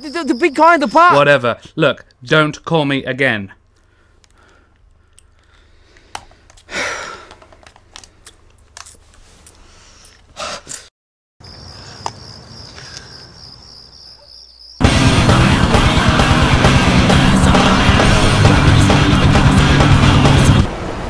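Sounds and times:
loud heavy rock music: 14.8s - 20.7s.

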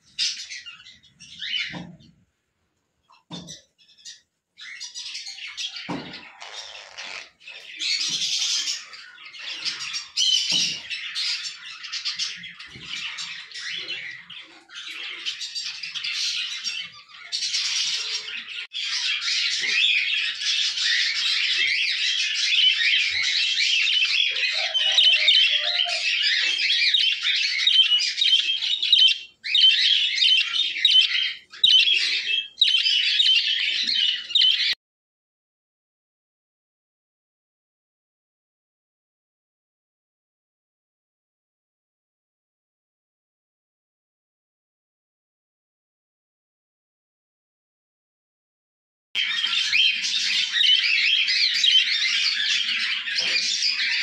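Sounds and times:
budgerigars chattering: 4.6s - 34.8s, 49.2s - 54.0s.

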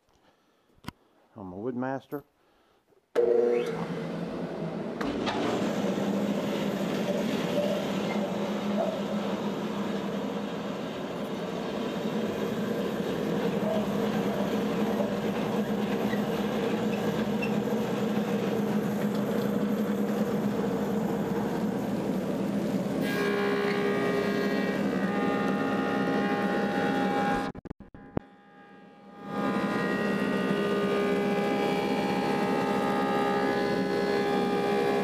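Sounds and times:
dust collector humming: 3.2s - 27.5s, 29.1s - 35.0s
thickness planer cutting wood: 12.2s - 20.7s, 23.0s - 27.5s, 29.2s - 35.0s.

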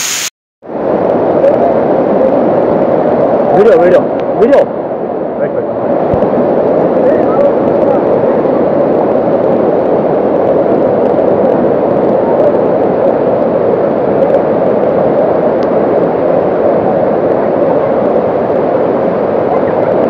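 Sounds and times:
waterfall rushing over rocks: 0.0s - 0.3s.

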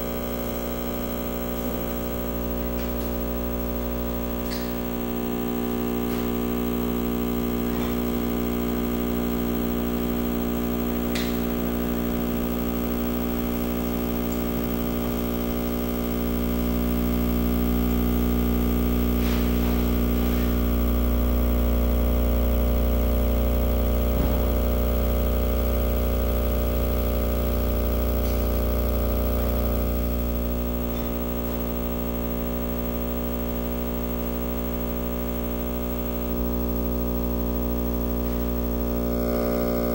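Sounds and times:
electronic drone of hum-like tones: 0.0s - 39.9s.

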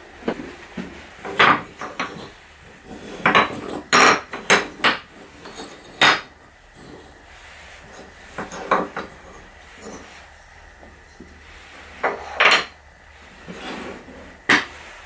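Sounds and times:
wood pieces clacking on workbench: 1.2s - 2.3s, 2.9s - 6.3s, 8.4s - 9.2s, 12.0s - 12.8s, 14.5s - 14.7s.

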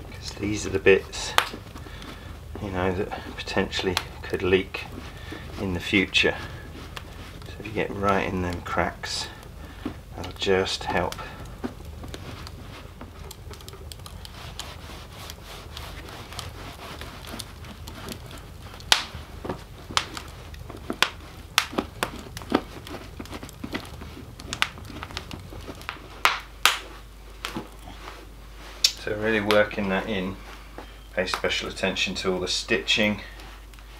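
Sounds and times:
cloth rubbing leather boot: 0.0s - 26.2s
log fire crackling and popping: 0.0s - 33.9s.

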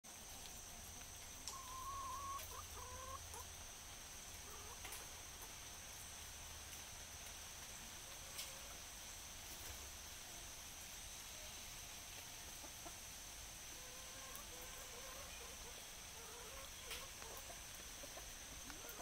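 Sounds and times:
young hens calling: 1.4s - 3.6s, 13.7s - 19.0s.

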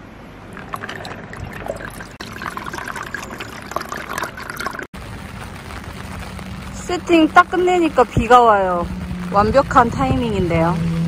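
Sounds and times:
water pouring into metal mugs: 0.5s - 4.9s.

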